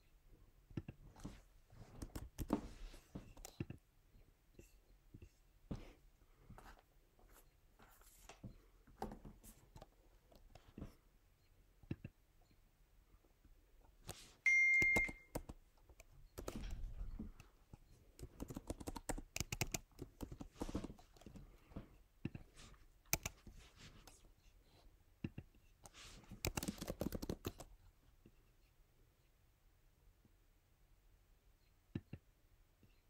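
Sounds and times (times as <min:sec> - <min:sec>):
short high electronic beep: 0:14.5 - 0:15.3
typing and desk clicks: 0:14.8 - 0:16.9, 0:18.2 - 0:21.4, 0:26.4 - 0:27.7.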